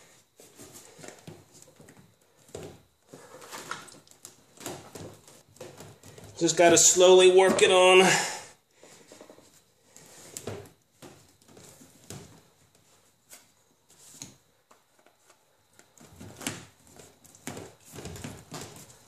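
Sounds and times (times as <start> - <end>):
plastic hose rubbing and knocking: 0.0 - 8.1.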